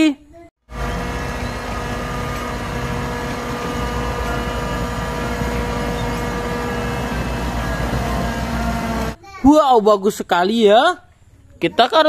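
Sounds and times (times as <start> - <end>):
truck diesel engine running: 0.7 - 9.2.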